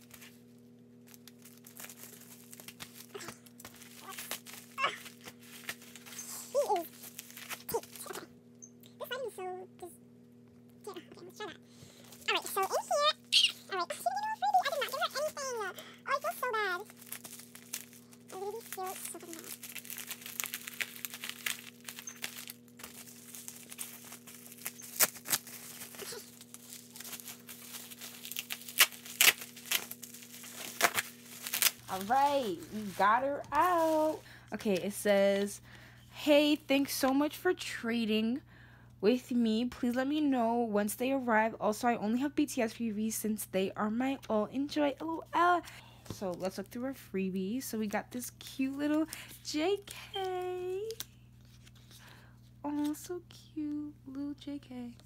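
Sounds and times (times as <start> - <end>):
packaging crinkling and tearing: 0.0 - 8.2, 10.9 - 35.5
low electrical hum: 0.0 - 55.0.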